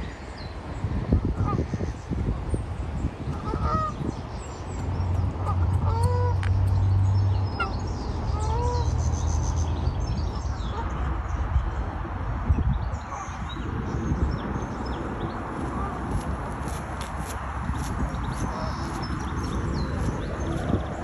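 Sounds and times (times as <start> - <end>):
water bird calling: 3.3 - 4.0, 5.4 - 6.5, 7.5 - 8.9.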